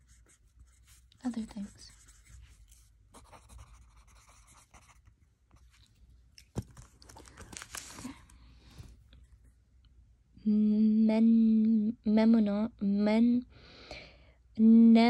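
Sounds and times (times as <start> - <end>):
paper rustling and scraping: 6.6 - 8.3.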